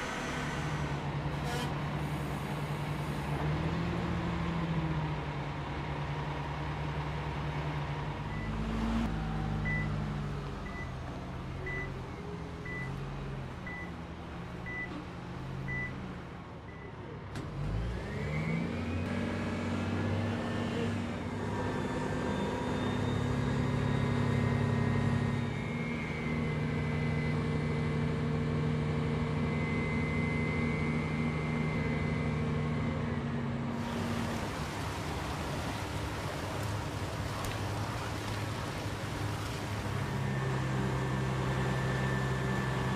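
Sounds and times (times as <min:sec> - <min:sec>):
hydraulic whine: 0:00.0 - 0:03.5
heavy vehicle engine running: 0:00.0 - 0:18.2, 0:19.1 - 0:42.9
molten slag pouring rush: 0:33.8 - 0:40.2.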